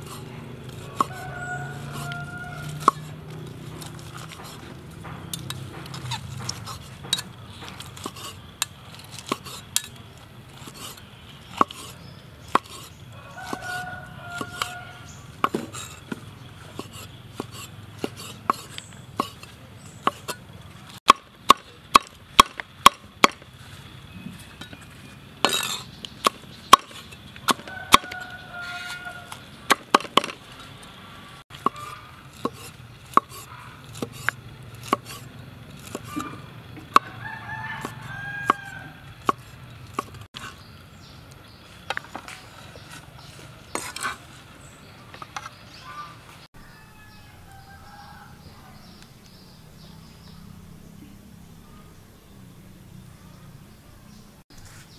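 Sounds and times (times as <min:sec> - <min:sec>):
cleaver chopping on wooden board: 0:00.8 - 0:03.1, 0:10.6 - 0:11.9, 0:12.5 - 0:14.8, 0:15.4 - 0:20.4, 0:21.0 - 0:23.5, 0:25.4 - 0:30.4, 0:31.5 - 0:35.2, 0:35.8 - 0:37.2, 0:37.8 - 0:40.5.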